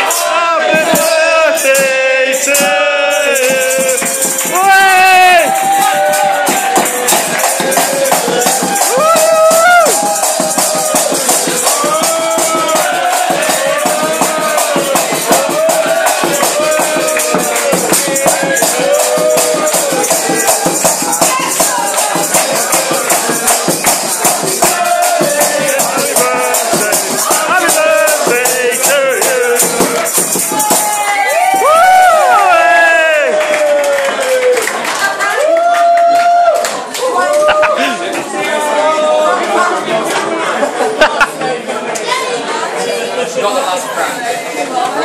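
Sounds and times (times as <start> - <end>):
lively music with rattling beat: 0.0 - 33.4
restaurant chatter: 0.0 - 45.0.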